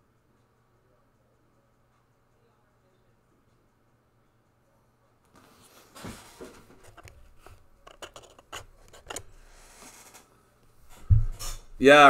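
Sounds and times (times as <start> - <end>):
faint rustling and scraping: 5.3 - 11.8.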